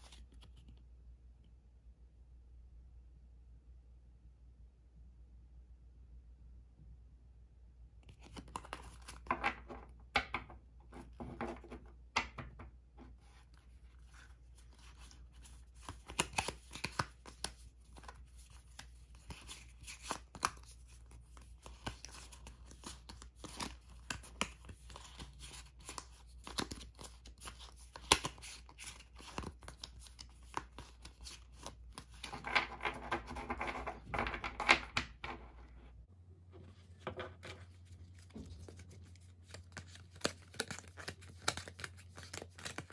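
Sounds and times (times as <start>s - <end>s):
playing cards shuffling: 0.0s - 0.8s, 8.1s - 9.9s, 13.1s - 35.8s, 36.6s - 42.9s.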